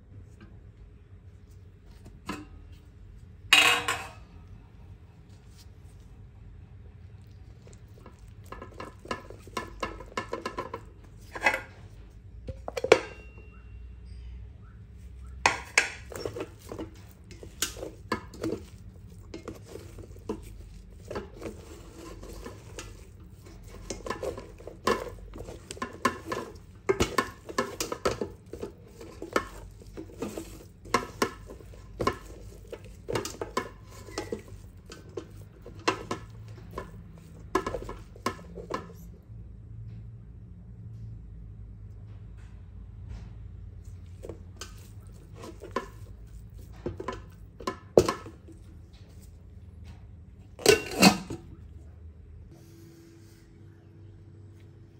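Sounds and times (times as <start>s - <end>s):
utensil clinking against pot: 3.5s - 4.3s, 7.6s - 11.8s, 12.5s - 13.5s, 15.3s - 39.1s, 44.1s - 49.3s, 50.5s - 51.6s
utensil scraping a metal pot: 7.6s - 13.4s, 15.1s - 39.1s, 44.0s - 49.4s, 50.6s - 51.6s.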